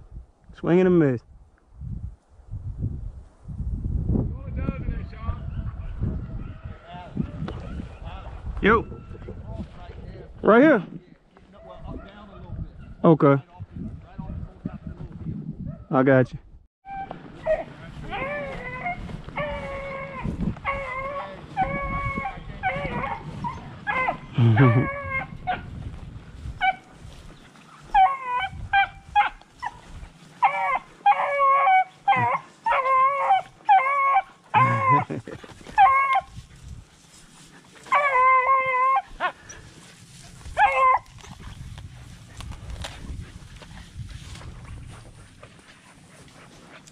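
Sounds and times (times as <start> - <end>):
dogs baying and howling: 5.4 - 8.0, 16.9 - 36.5, 37.3 - 46.8.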